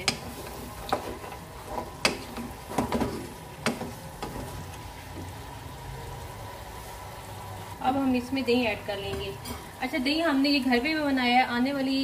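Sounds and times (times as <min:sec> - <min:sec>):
wooden spoon knocking a pan: 0:00.0 - 0:04.5
faint sizzle of food: 0:00.0 - 0:12.0.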